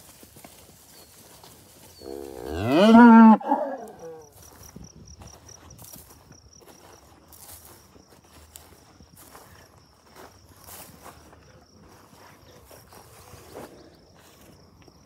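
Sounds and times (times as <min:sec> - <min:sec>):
cow mooing: 0:02.0 - 0:04.2.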